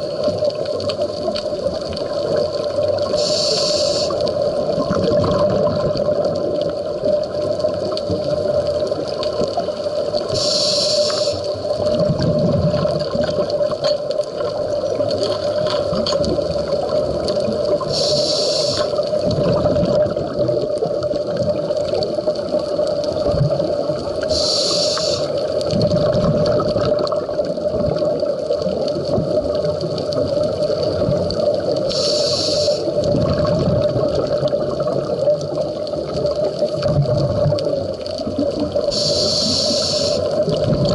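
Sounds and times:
regulator inhalation hisses: 3.1s - 4.3s, 10.3s - 11.6s, 17.8s - 19.2s, 24.3s - 25.4s, 31.8s - 33.0s, 38.9s - 40.3s
steady hum: 3.1s - 4.3s, 10.3s - 11.6s, 17.8s - 19.1s, 38.9s - 40.3s
bubbling underwater: 4.3s - 10.4s, 11.6s - 24.4s, 25.1s - 32.0s, 32.9s - 40.9s.

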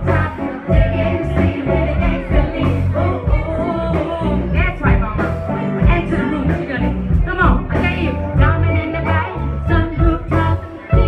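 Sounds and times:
bass line: 0.0s - 11.0s
keyboard chords: 0.0s - 11.0s
person singing: 0.0s - 11.0s.

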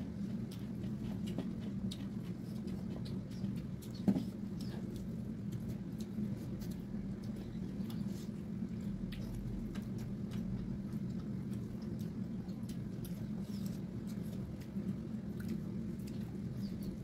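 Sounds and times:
steady low hum: 0.0s - 17.0s
wet chewing and lip smacking: 0.0s - 17.0s.

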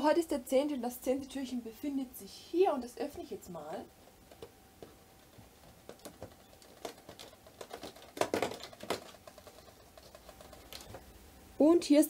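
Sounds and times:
item rustling inside: 3.0s - 11.6s.

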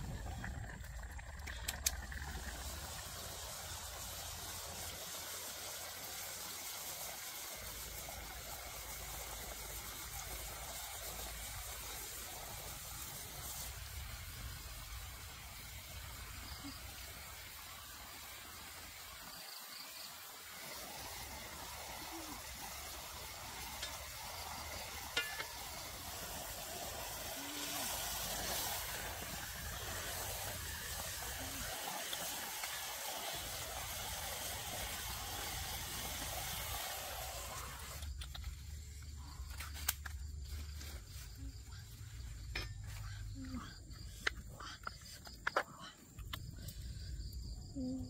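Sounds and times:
chicken sizzling in a wok: 1.6s - 39.0s.

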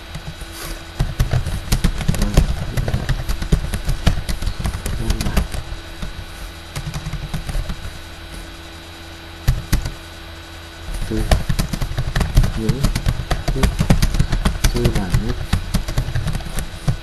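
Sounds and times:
low background hum: 0.0s - 17.0s
computer keyboard typing: 1.0s - 6.1s, 6.7s - 7.9s, 11.0s - 17.0s.

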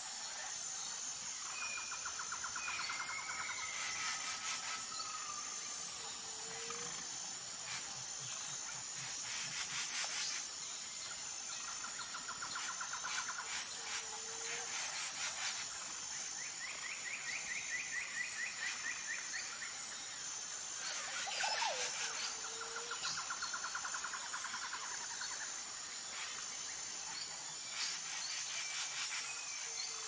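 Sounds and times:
high-pitched insect buzz: 0.0s - 30.0s
bird calls with rapid trills: 20.8s - 23.7s.

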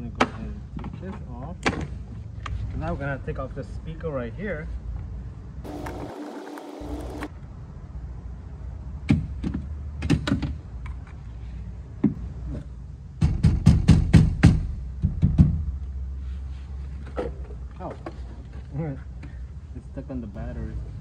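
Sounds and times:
brief buzz: 5.7s - 7.3s.

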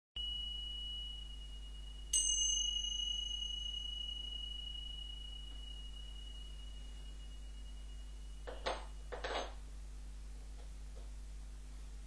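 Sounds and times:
hand cymbals clashing: 0.2s - 9.5s
hand cymbals ringing: 0.2s - 9.6s.

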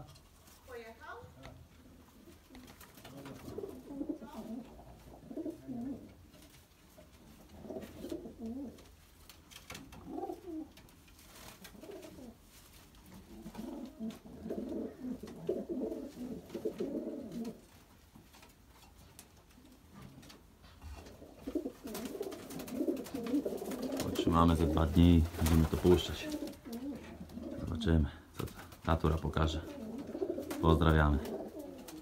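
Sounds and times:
pigeons cooing: 1.8s - 6.3s, 7.2s - 9.0s, 9.9s - 10.9s, 11.6s - 17.7s, 19.6s - 28.7s, 29.4s - 32.0s.

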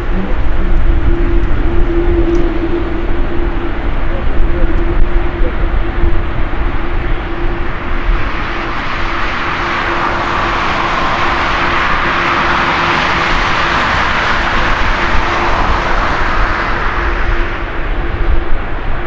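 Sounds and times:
jet engine roar: 0.0s - 19.0s.

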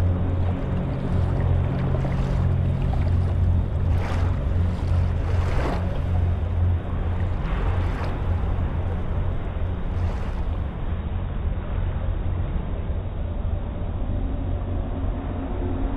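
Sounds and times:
small waves washing over sand: 0.0s - 10.8s
steady low rumble: 0.0s - 15.9s.

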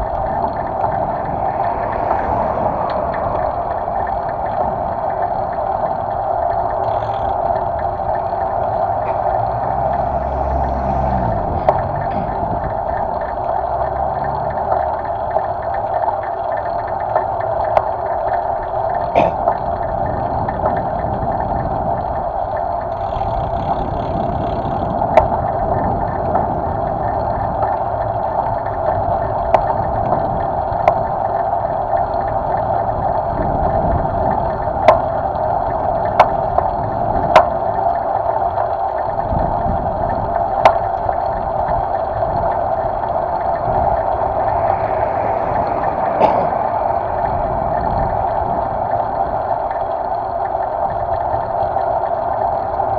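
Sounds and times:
rushing wind and road noise: 0.0s - 52.9s
bicycle knocks and rattles: 3.0s - 9.3s, 22.9s - 27.8s.

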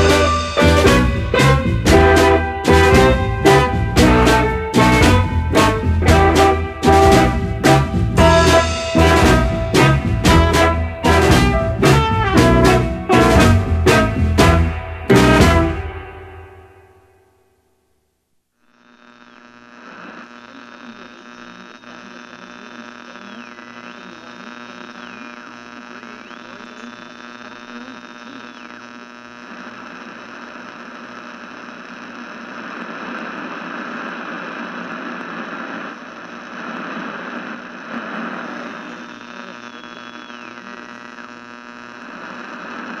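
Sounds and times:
electrical hum: 18.7s - 43.0s
high whistling tone: 39.7s - 40.7s.

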